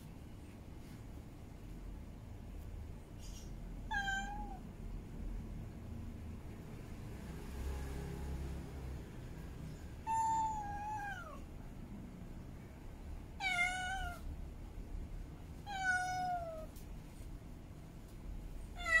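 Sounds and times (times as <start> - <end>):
cat meowing drawn-out: 3.9 - 4.6, 13.4 - 14.2, 15.6 - 16.7, 18.8 - 19.0.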